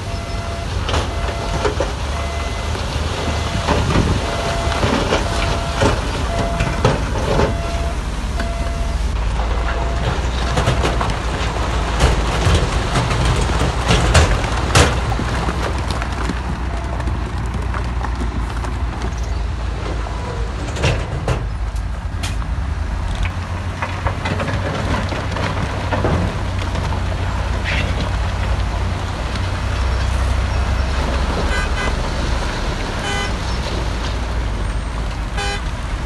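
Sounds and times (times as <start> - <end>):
diesel engine rumbling: 0.0 - 36.0
sharp clanks and knocks: 3.2 - 28.7.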